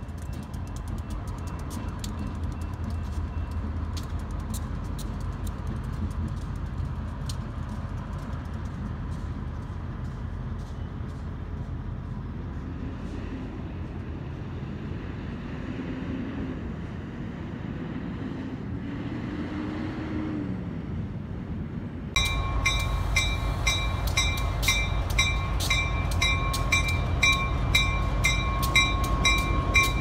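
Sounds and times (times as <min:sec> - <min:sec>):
diesel locomotive engine rumble: 0:00.0 - 0:30.0
railroad crossing bell ringing: 0:22.2 - 0:30.0.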